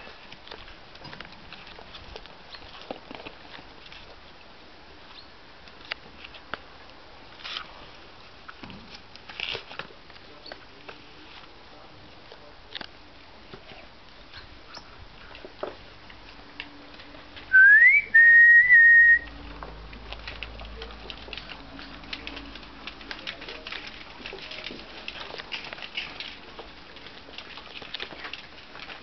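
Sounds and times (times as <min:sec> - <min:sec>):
puppy paws pattering on paving: 0:00.0 - 0:29.0
whistle blowing: 0:17.5 - 0:19.3.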